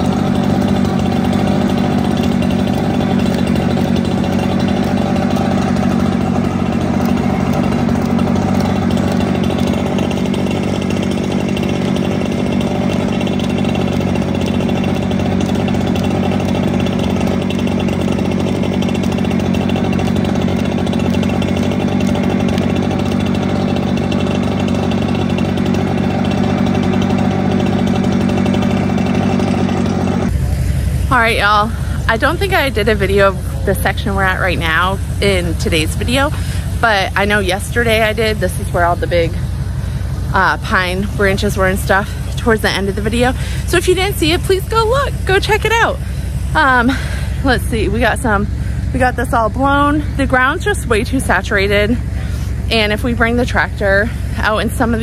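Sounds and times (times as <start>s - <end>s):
leaf blower engine droning: 0.0s - 55.0s.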